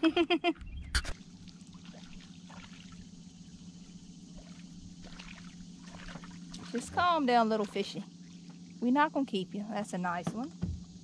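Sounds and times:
steady low hum: 0.0s - 11.0s
thump and knock in boat: 10.1s - 11.0s.

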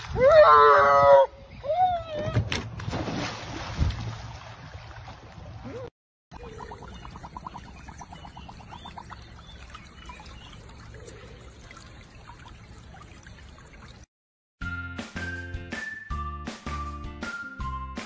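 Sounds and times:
stream trickling over stones: 6.4s - 14.1s.

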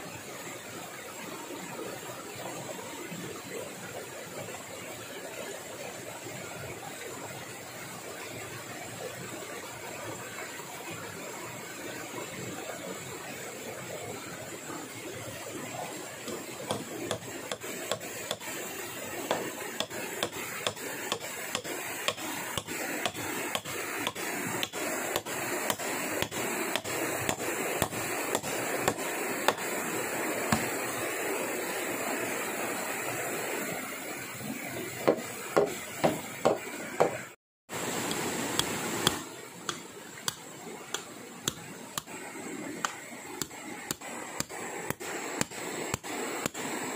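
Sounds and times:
blade chopping wood: 16.3s - 18.5s, 19.3s - 29.7s, 30.5s - 30.7s, 38.1s - 42.1s.

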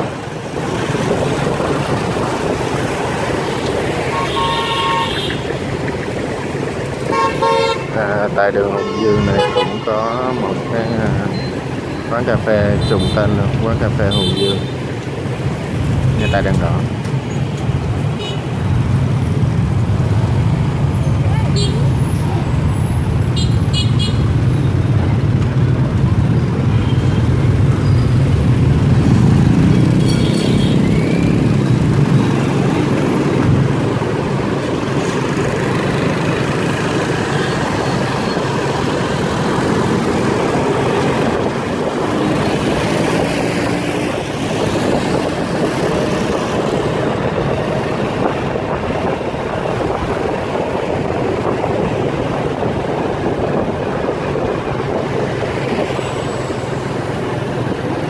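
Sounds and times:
motorbike engine and road rumble: 0.0s - 58.0s
scooters and motorbikes passing: 14.8s - 58.0s.

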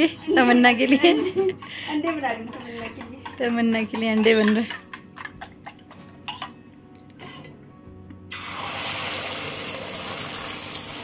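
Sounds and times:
utensil clinking on pan: 0.0s - 6.6s
egg sizzling in pan: 8.3s - 11.0s.

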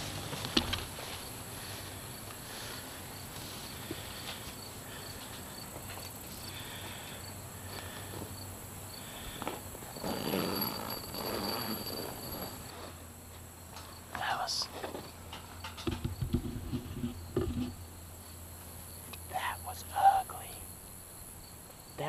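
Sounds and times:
clothing rustling and scuffing: 0.0s - 2.0s
insects chirping: 0.0s - 22.0s
knocks against wooden stand: 15.7s - 16.6s.

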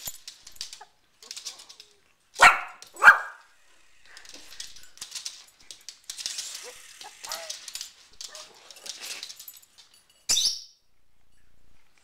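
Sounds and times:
paws clicking on hardwood floor: 0.0s - 10.2s
small dog barking: 2.4s - 3.5s.

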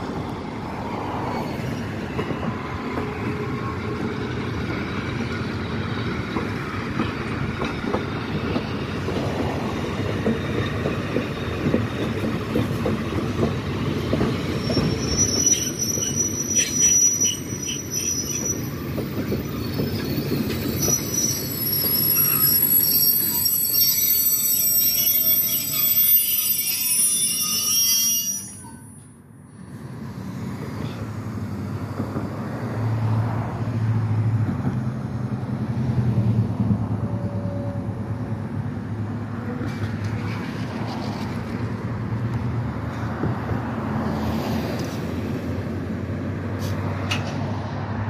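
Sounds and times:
train wheels rumbling on rails: 0.0s - 28.8s, 29.6s - 48.0s
high-pitched wheel squeal: 14.3s - 29.2s.

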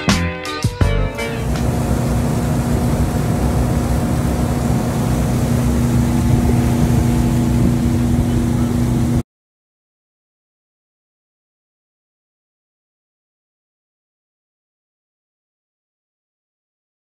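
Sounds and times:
boat engine droning: 1.1s - 9.2s
rushing water wash: 1.2s - 9.2s.

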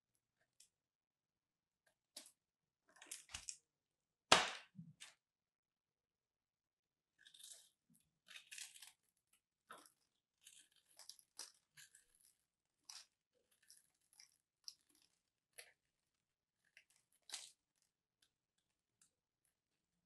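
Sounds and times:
blade crunching dry soap: 7.1s - 20.0s.

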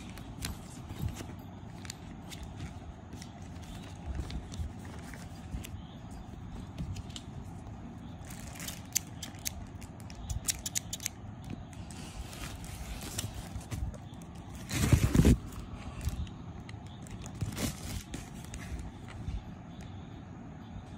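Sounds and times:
scissors clicking: 10.2s - 11.2s.

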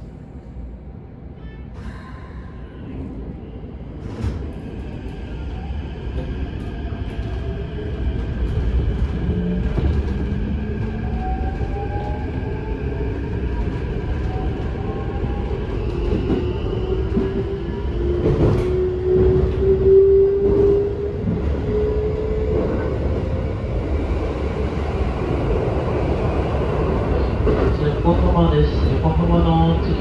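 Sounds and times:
wheels rumbling on rail: 6.1s - 30.0s.

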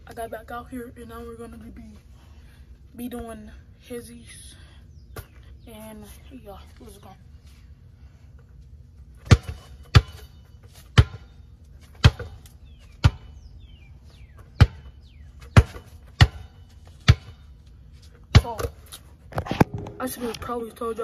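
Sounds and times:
basketball bouncing on ground: 9.1s - 13.5s, 14.1s - 17.6s, 18.2s - 20.6s.

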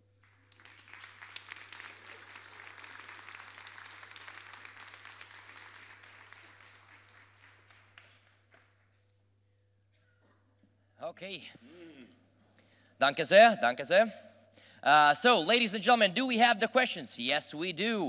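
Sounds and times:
audience applauding: 0.2s - 8.8s.

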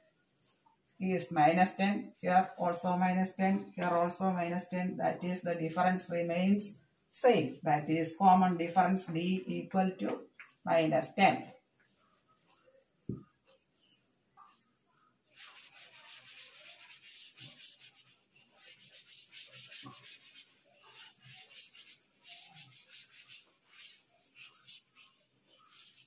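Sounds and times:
duster rubbing chalkboard: 15.2s - 26.0s.

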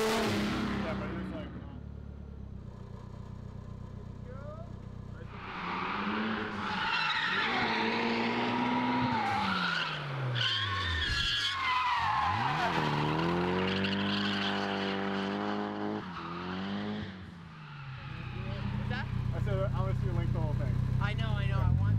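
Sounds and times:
car engine revving hard: 0.0s - 1.4s, 5.5s - 10.3s, 12.3s - 17.3s
tyres squealing: 5.3s - 14.7s.

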